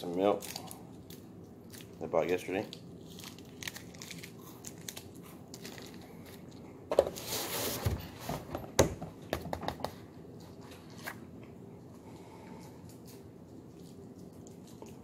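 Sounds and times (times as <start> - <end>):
packaging crinkling: 0.2 - 6.6.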